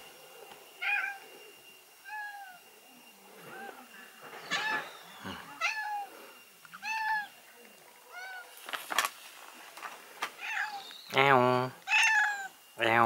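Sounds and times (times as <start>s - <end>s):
cat meowing: 0.8s - 1.2s, 4.5s - 4.9s, 5.6s - 6.1s, 6.8s - 7.3s, 10.4s - 10.8s, 11.8s - 12.5s.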